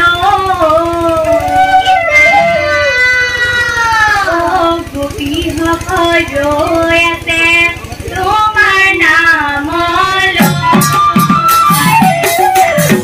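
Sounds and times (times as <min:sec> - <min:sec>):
drum beats: 0:00.4 - 0:06.9, 0:09.6 - 0:13.0.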